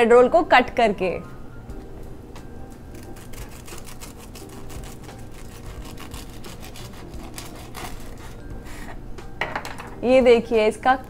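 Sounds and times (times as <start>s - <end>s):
knife cutting crunchy crust: 3.0s - 8.9s.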